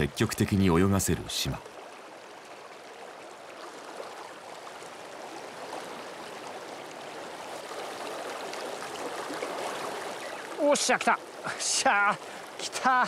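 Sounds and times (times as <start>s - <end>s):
river water rushing: 0.0s - 13.0s.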